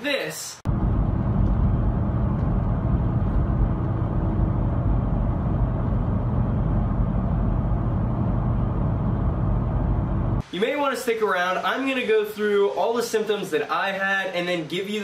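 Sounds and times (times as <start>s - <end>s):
misfiring engine rumble in car cabin: 0.7s - 10.4s.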